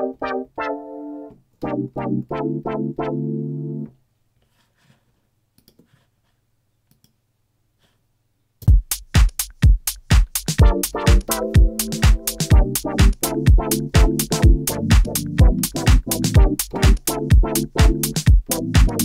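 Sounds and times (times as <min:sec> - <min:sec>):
house drum beat: 0:08.6 - 0:19.0.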